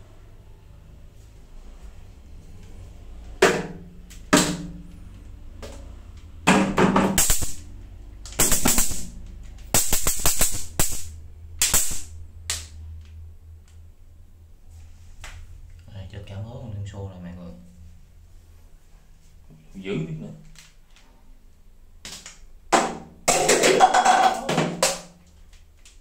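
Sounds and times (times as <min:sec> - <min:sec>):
electric bug zapper crackling: 0:07.2 - 0:07.7, 0:08.3 - 0:12.2.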